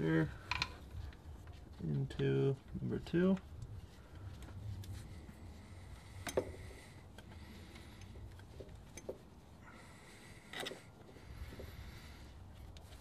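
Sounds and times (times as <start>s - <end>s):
hose fitting clicks and knocks: 0.4s - 0.9s.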